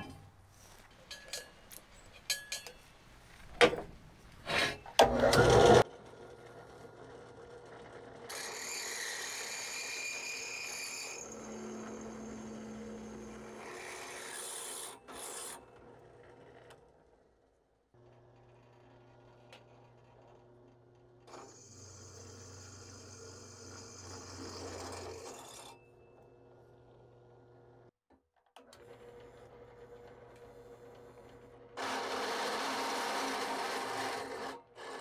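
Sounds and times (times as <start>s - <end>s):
drill bit cutting steel: 8.3s - 15.6s, 21.3s - 25.8s, 31.8s - 35.0s.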